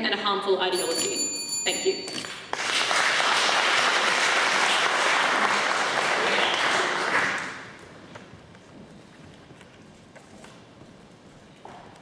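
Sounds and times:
audience applauding: 2.5s - 7.8s.

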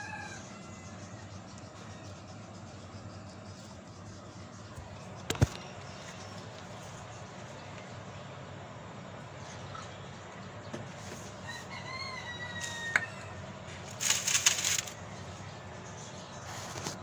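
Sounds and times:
rooster crowing: 0.0s - 1.5s, 11.4s - 13.5s
rustling and crackling of roots: 13.9s - 15.0s.

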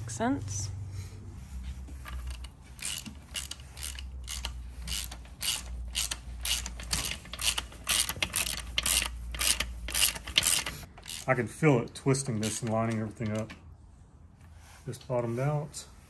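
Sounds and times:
hand ratchet clicking: 2.0s - 11.5s, 12.1s - 13.5s.

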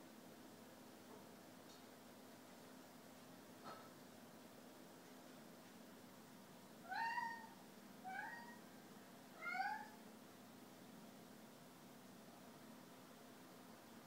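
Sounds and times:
cat meowing: 6.8s - 8.6s, 9.4s - 10.0s.

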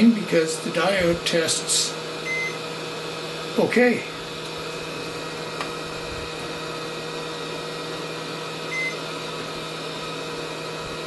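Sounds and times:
electrical hum: 0.0s - 11.0s
multimeter beep: 2.2s - 2.6s, 8.7s - 9.0s.

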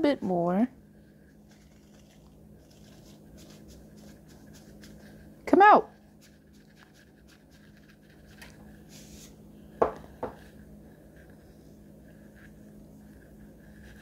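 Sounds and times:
faint steady hum: 0.0s - 14.0s
salt shaker being shaken: 1.4s - 5.3s, 5.9s - 9.3s.

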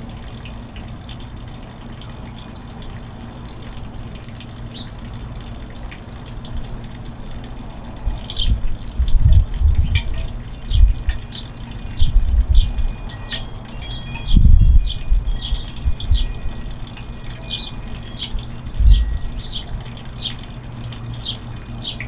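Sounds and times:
steady low rumble: 7.5s - 21.7s
wind gusts buffeting microphone: 8.3s - 11.2s, 11.9s - 13.0s, 14.1s - 16.6s, 18.7s - 19.3s
small birds chirping: 9.7s - 22.0s.

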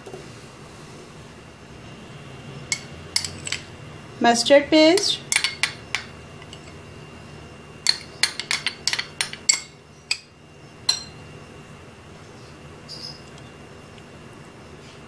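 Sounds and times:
metal spoon clinking on glass: 5.0s - 6.8s, 7.8s - 10.3s, 10.9s - 11.2s.

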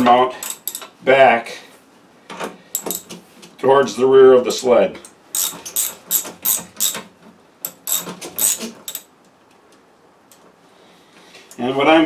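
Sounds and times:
ratchet wrench clicking: 0.4s - 0.9s, 2.7s - 3.1s, 5.3s - 7.0s, 7.6s - 9.1s.

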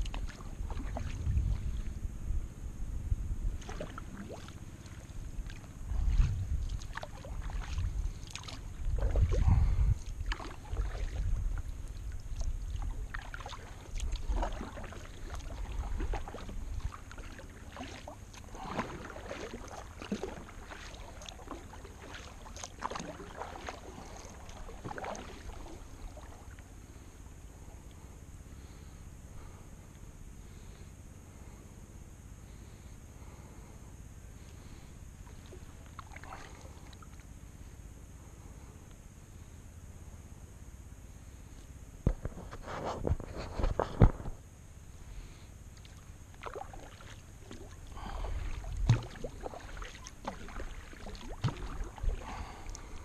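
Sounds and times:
paddle splashing in water: 0.0s - 2.0s, 3.6s - 26.7s, 34.7s - 37.2s, 45.8s - 53.0s
low rumble: 0.0s - 17.6s.

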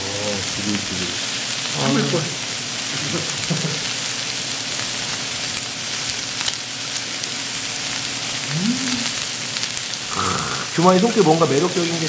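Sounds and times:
meat sizzling on a grill: 0.0s - 12.0s
short voice sound: 8.5s - 9.2s.

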